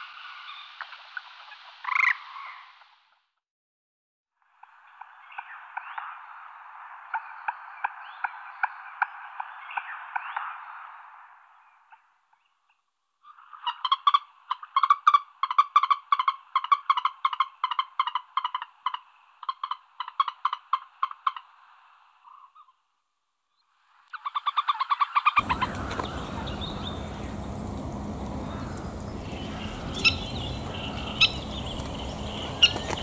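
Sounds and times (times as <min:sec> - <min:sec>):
frogs croaking: 0:00.0 - 0:02.9, 0:13.2 - 0:22.8, 0:23.8 - 0:33.0.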